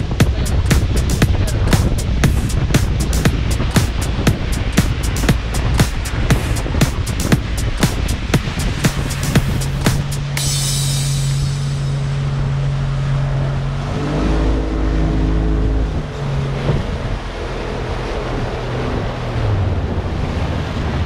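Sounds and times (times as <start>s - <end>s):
background music with drum beat: 0.0s - 11.9s
motorboat engine hum: 0.0s - 21.0s
wind and water rushing: 0.0s - 21.0s.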